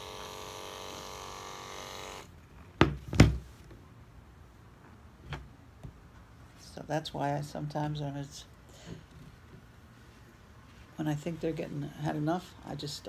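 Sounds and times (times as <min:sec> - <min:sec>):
electric clippers humming: 0:00.0 - 0:02.3.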